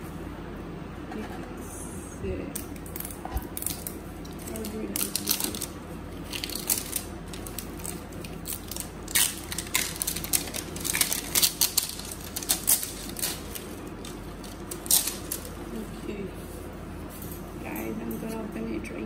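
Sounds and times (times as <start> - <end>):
plastic wrap crinkling: 2.6 - 16.7.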